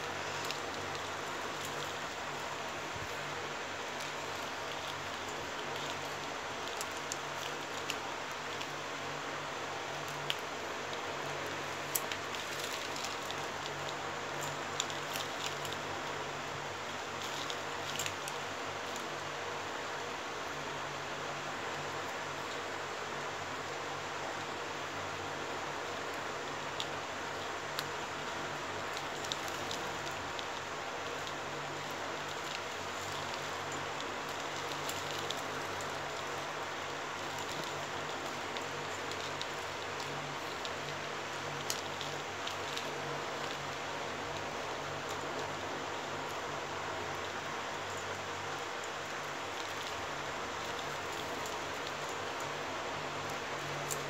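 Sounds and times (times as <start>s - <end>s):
plastic wire clicking and rustling: 0.0s - 19.3s, 26.1s - 46.4s, 47.1s - 54.0s
steady hiss and low hum: 0.0s - 54.0s
light plastic ticks: 10.0s - 15.8s, 26.8s - 31.4s.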